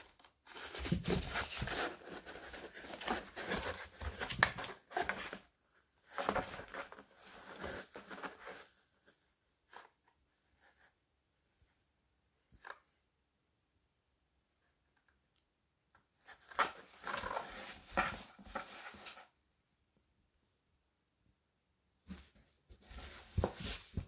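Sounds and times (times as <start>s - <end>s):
cardboard box scraping and rustling: 0.5s - 5.4s, 22.8s - 24.0s.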